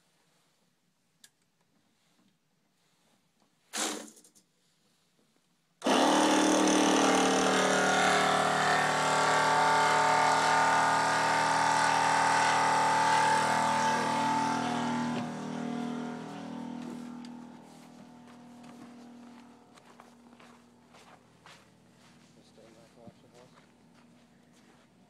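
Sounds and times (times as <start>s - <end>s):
motor whining: 5.8s - 20.4s.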